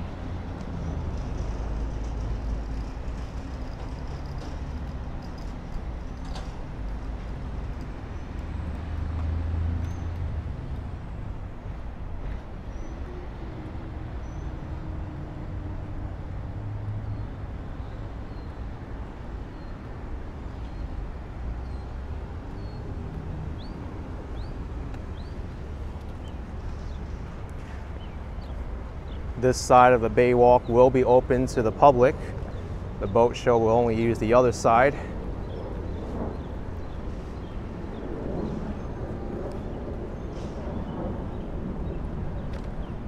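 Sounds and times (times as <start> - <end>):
distant traffic: 0.0 - 43.0
wind: 0.0 - 43.0
bird chirping: 23.6 - 29.3.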